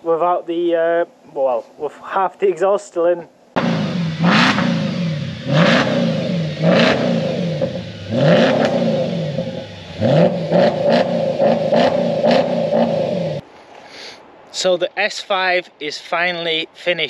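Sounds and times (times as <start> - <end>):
car engine revving: 3.6 - 13.4.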